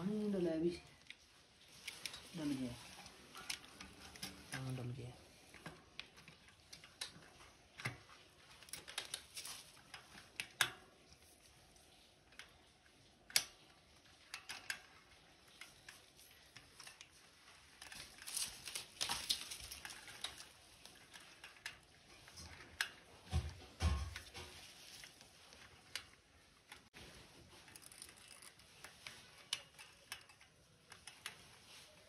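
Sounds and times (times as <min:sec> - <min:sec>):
small metallic clicks and taps: 0:01.0 - 0:10.9, 0:11.9 - 0:17.2, 0:27.5 - 0:32.0
metal parts rattling: 0:16.6 - 0:22.9, 0:27.5 - 0:31.3.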